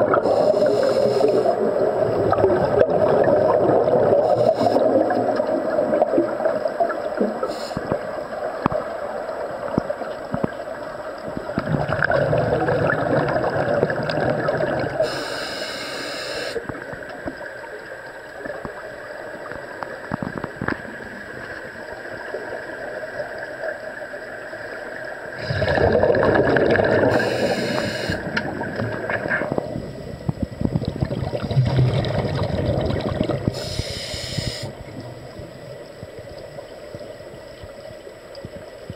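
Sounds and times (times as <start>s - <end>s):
underwater air bubbling: 0.0s - 38.9s
short high air hisses: 0.3s - 1.5s, 15.1s - 16.6s, 27.1s - 28.3s, 33.6s - 34.7s.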